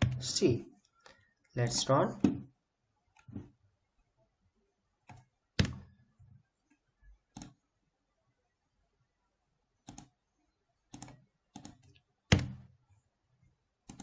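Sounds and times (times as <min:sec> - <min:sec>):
keyboard and mouse clicks: 0:05.0 - 0:05.9, 0:07.3 - 0:07.6, 0:09.8 - 0:10.1, 0:10.9 - 0:12.6.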